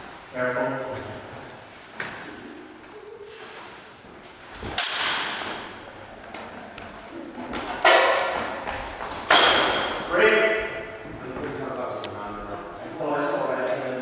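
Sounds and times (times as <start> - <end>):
steel swords clashing: 4.8 - 5.5.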